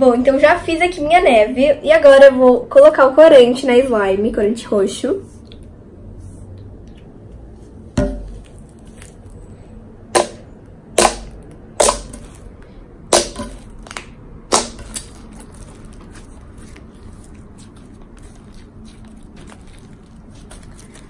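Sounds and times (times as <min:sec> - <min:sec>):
slime crackling: 0:07.7 - 0:09.6, 0:11.0 - 0:21.0
slime air pockets popping: 0:10.2 - 0:16.9.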